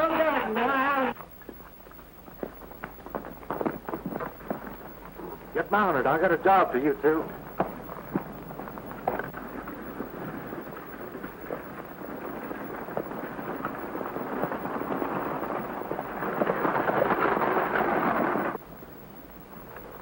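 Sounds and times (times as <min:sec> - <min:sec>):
horse hoofbeats on dirt road: 0:00.0 - 0:18.6
wagon wheels clattering: 0:00.0 - 0:18.6.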